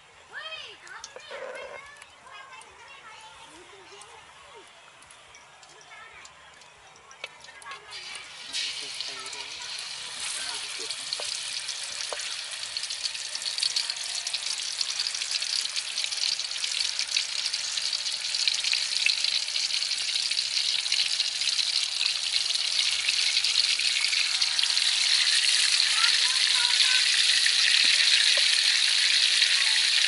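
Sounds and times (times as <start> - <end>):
food sizzling in hot oil: 7.8 - 30.0.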